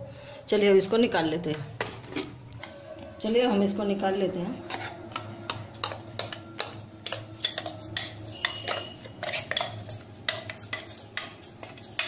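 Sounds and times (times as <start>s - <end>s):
spoon scraping metal jar: 4.6s - 12.0s.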